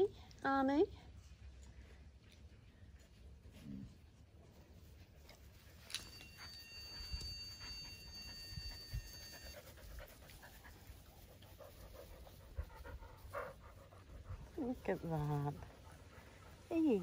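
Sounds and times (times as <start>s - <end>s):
dogs panting: 5.0s - 17.0s
faint steady high tone: 5.5s - 10.6s.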